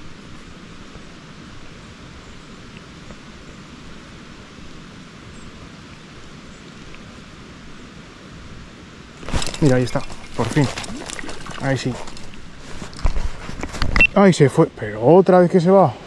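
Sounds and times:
river water rushing: 0.0s - 14.5s.

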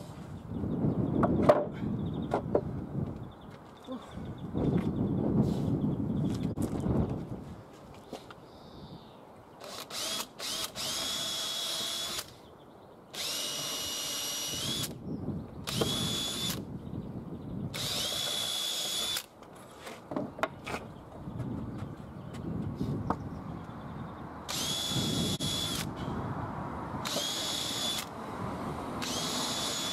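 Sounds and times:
cordless drill whining: 9.6s - 12.3s, 13.2s - 15.0s, 15.7s - 16.6s, 17.8s - 19.3s, 24.5s - 26.0s, 27.0s - 28.1s, 29.0s - 29.9s.

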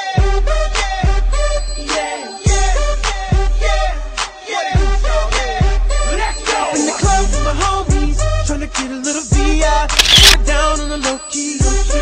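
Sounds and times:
hip-hop music with vocals: 0.0s - 9.4s.

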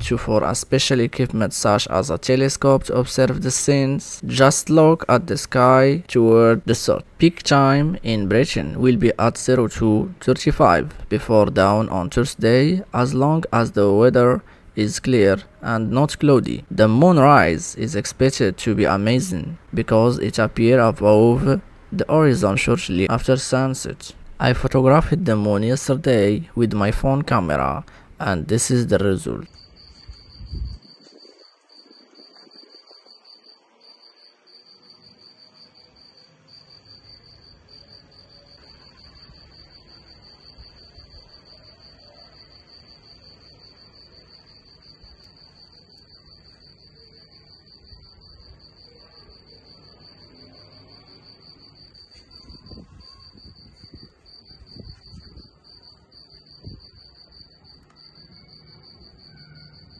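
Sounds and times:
crickets chirping: 0.0s - 59.9s.

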